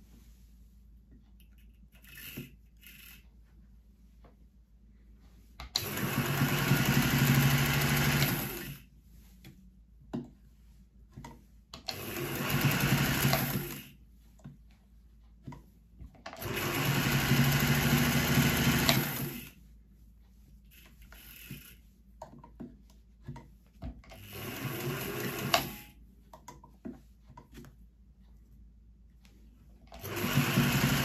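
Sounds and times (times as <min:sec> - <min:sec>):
sewing machine stitching: 0:01.9 - 0:03.3, 0:05.6 - 0:08.9, 0:11.8 - 0:14.0, 0:16.2 - 0:19.6, 0:20.7 - 0:21.9, 0:24.0 - 0:26.0, 0:29.9 - 0:31.0.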